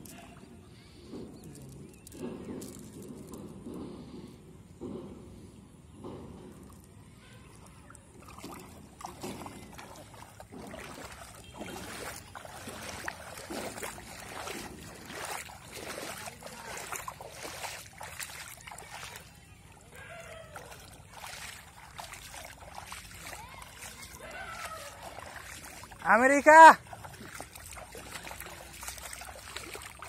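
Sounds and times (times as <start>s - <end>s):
feet wading through water: 6.5s - 30.0s.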